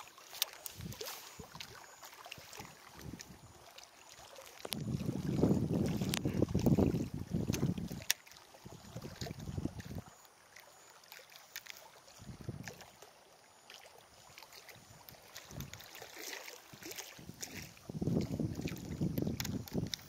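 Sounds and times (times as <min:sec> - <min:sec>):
water lapping: 0:00.0 - 0:20.0
wind rumbling on microphone: 0:00.7 - 0:01.8, 0:02.4 - 0:03.5, 0:04.6 - 0:10.1, 0:12.2 - 0:12.8, 0:14.8 - 0:15.9, 0:16.7 - 0:20.0
faint ticks: 0:06.0 - 0:06.7, 0:19.0 - 0:20.0.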